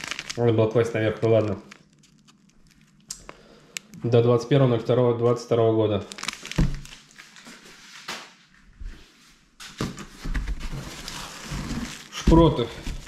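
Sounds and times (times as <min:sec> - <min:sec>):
packaging rustling: 0:00.0 - 0:03.4, 0:06.0 - 0:07.5, 0:10.3 - 0:13.0.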